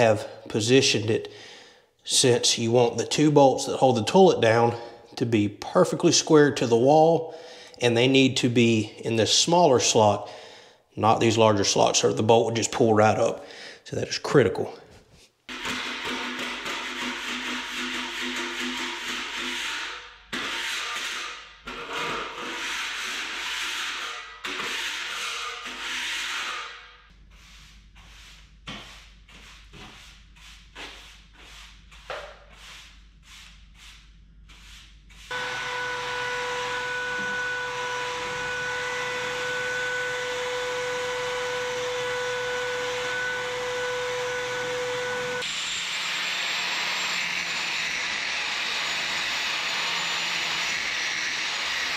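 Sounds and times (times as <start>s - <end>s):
broom sweeping concrete floor: 25.1s - 35.3s.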